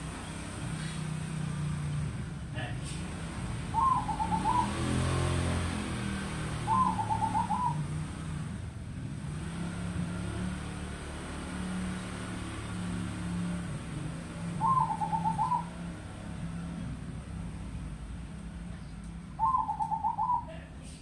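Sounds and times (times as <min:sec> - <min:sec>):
dove cooing: 0:03.7 - 0:05.4, 0:06.6 - 0:08.0, 0:14.5 - 0:16.0, 0:19.3 - 0:20.7.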